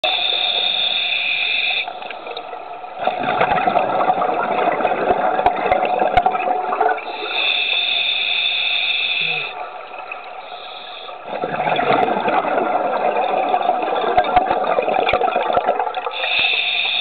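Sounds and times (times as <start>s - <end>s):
high underwater whine: 0.0s - 17.0s
bubbling exhaled breath: 3.1s - 9.7s.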